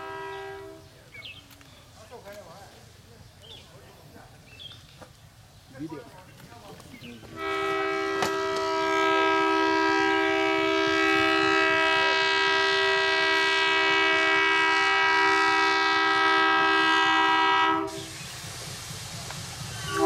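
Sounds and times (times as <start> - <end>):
steam locomotive whistle blast: 0.0 - 0.9, 7.3 - 18.4, 19.6 - 20.0.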